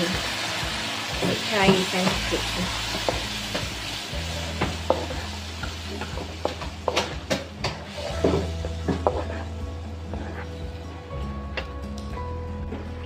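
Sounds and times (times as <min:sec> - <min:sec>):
paste sizzling in a wok: 0:00.0 - 0:11.1
spatula scraping and clicking on pan: 0:04.6 - 0:09.5.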